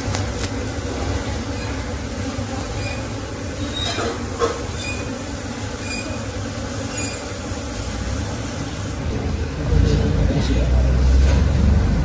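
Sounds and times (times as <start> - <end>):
bees humming: 0.0 - 12.0.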